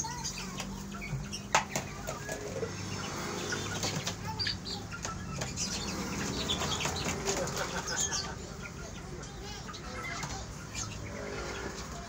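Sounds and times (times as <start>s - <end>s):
young chickens clucking: 0.0s - 12.0s
wings flapping: 5.4s - 8.1s.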